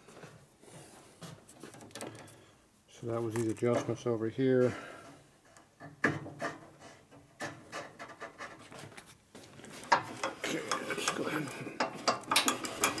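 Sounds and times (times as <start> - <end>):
metal parts clicking and knocking: 9.9 - 13.0.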